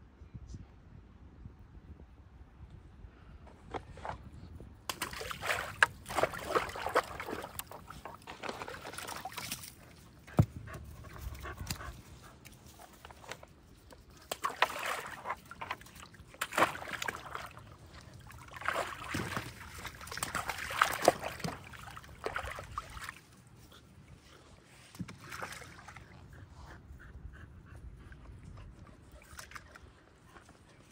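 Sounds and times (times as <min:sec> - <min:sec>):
dogs splashing water: 0:04.9 - 0:26.4, 0:28.2 - 0:30.9.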